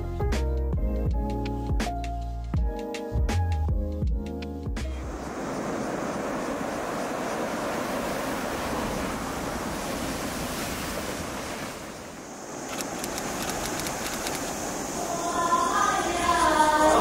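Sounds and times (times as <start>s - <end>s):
waves washing over pebble beach: 5.1s - 15.4s.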